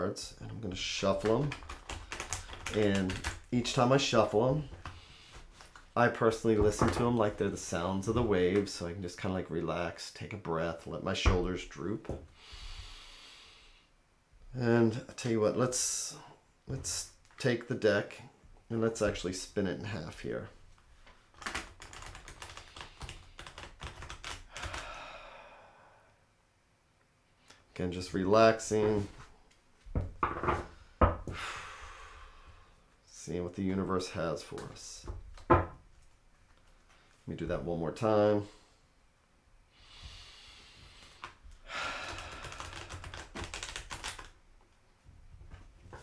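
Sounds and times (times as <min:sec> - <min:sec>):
cards being shuffled: 0:00.5 - 0:08.7, 0:21.0 - 0:25.0, 0:40.9 - 0:44.4.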